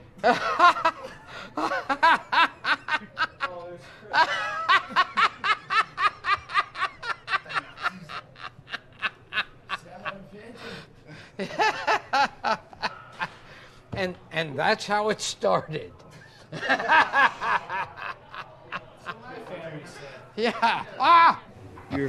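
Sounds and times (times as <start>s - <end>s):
man laughing hard: 0.2s - 10.1s, 16.6s - 18.4s, 20.4s - 21.4s.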